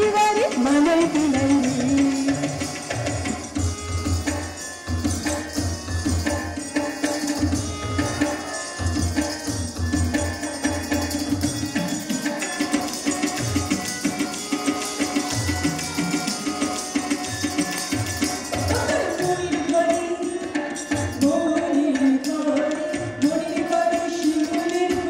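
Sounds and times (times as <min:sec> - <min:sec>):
hand drum beating: 0:09.0 - 0:19.9.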